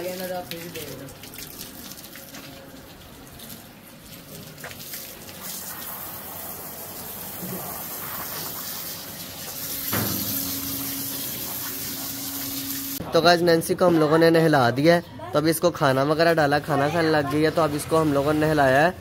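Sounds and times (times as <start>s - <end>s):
running water splashing: 0.0s - 13.0s.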